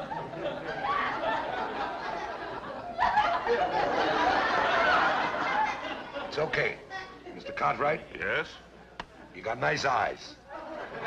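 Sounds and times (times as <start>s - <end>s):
audience laughter: 0.0s - 6.5s, 10.5s - 11.0s.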